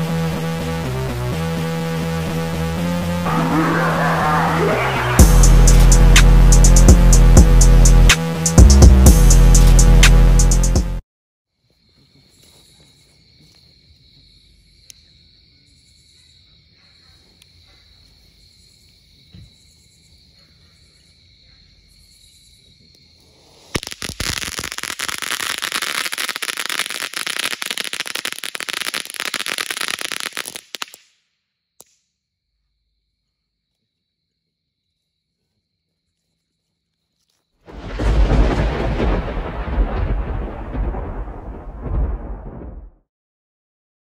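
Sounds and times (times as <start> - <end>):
insects chirping: 11.5 - 40.6
firework crackling: 23.6 - 31.1.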